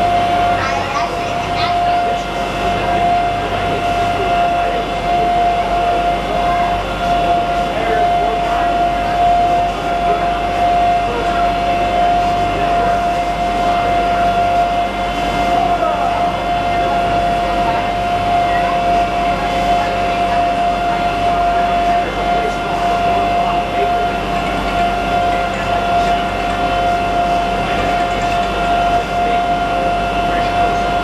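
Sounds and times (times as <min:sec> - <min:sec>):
boat motor running: 0:00.0 - 0:31.0
high-pitched whine: 0:00.0 - 0:31.0.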